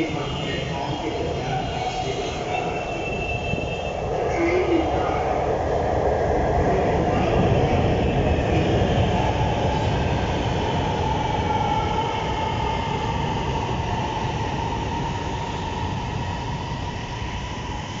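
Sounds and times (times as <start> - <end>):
train whine rising in pitch: 0.0 - 6.4
electric train rumble: 0.0 - 18.0.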